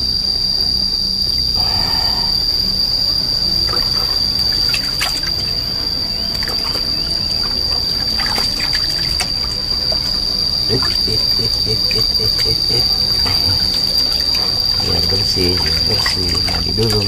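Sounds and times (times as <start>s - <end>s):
cricket trilling: 0.0s - 17.0s
water splashing in plastic basin: 3.7s - 5.6s, 6.3s - 17.0s.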